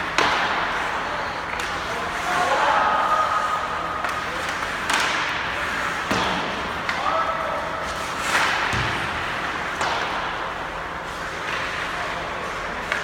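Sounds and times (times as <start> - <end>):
hockey sticks and puck knocking: 0.0 - 0.9, 4.0 - 7.1, 7.9 - 10.6, 12.8 - 13.0.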